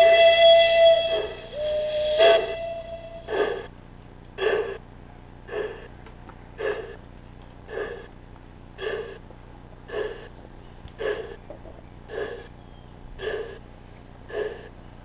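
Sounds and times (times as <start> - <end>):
steam whistle: 0.0 - 3.7
locomotive exhaust chuffs: 0.0 - 15.0.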